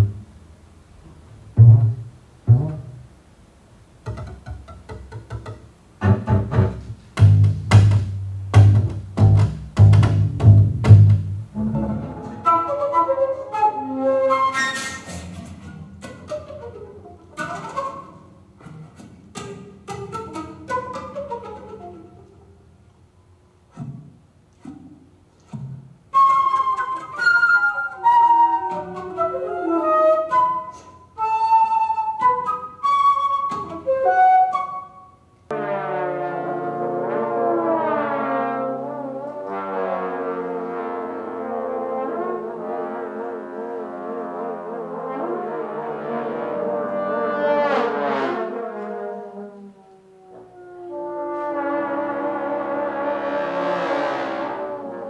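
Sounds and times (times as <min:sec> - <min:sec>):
double bass playing: 0:00.0 - 0:22.6, 0:35.5 - 0:55.0
flute-like wind instrument melody: 0:11.6 - 0:18.4, 0:19.9 - 0:22.6, 0:25.5 - 0:55.0.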